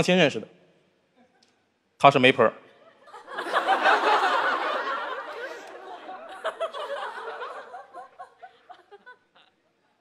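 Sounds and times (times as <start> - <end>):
audience laughing: 2.8 - 9.5.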